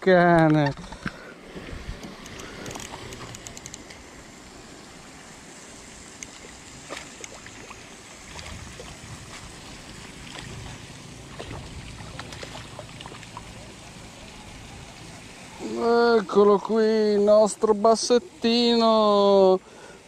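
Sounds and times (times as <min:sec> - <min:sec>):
outdoor hiss: 0:00.0 - 0:20.0
light water movement: 0:00.2 - 0:20.0
spinning reel clicking: 0:02.1 - 0:04.0.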